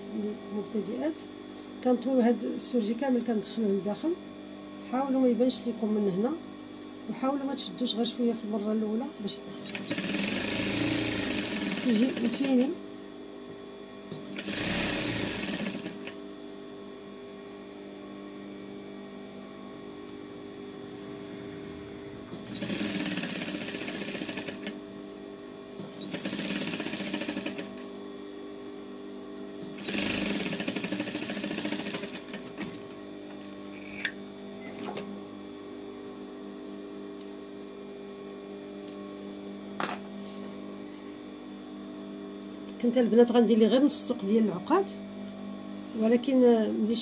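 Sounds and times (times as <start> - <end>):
sewing machine stitching: 9.6 - 12.7, 14.3 - 16.2, 22.4 - 24.8, 25.9 - 27.8, 29.8 - 32.8.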